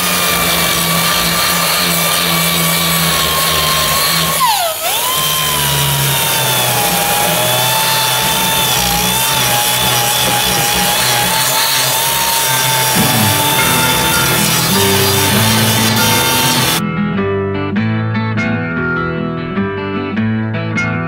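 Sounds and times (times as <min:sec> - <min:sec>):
power grinder cutting steel: 0:00.0 - 0:16.8.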